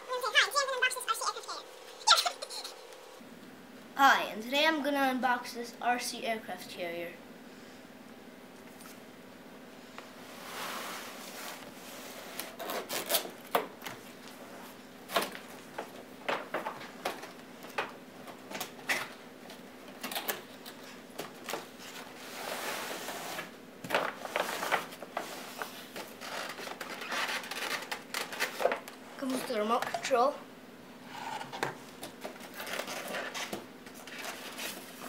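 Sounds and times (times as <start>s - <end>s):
cardboard rubbing and scraping: 10.4s - 13.3s, 21.8s - 23.5s, 24.2s - 28.7s, 32.2s - 35.0s.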